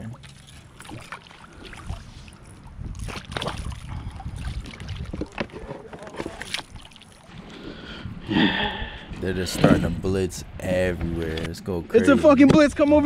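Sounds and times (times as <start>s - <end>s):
water splashing: 0.0s - 10.0s
wind rumble on microphone: 1.9s - 5.8s.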